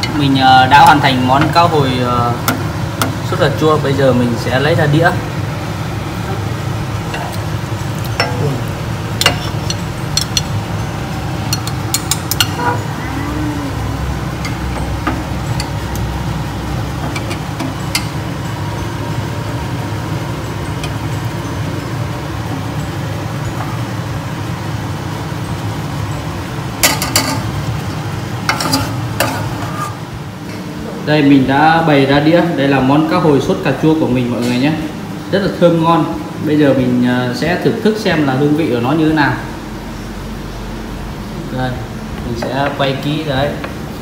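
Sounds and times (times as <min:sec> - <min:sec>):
steady low hum: 0:00.0 - 0:44.0
utensils clinking on pan and plate: 0:11.5 - 0:12.9, 0:26.8 - 0:30.0.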